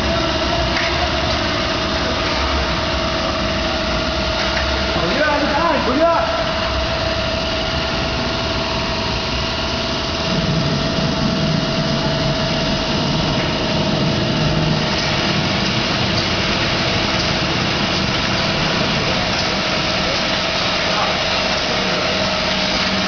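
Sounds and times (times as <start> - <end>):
filling machine humming: 0.0 - 23.0
mid-pitched machine whine: 0.0 - 23.0.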